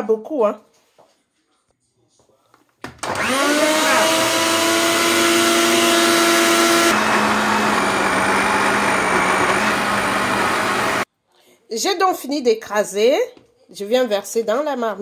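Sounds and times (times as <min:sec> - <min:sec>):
blender motor whining: 0:03.0 - 0:11.1.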